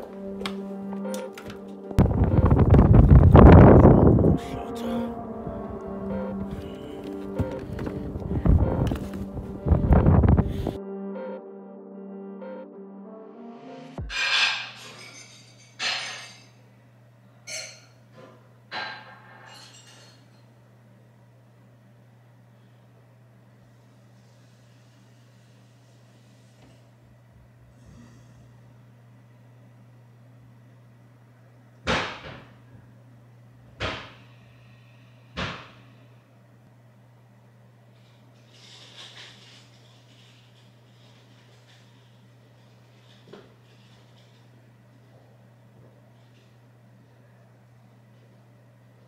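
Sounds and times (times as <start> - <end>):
low electrical hum: 0.0 - 13.2, 14.0 - 49.0
sharp ringing bangs: 14.0 - 16.5.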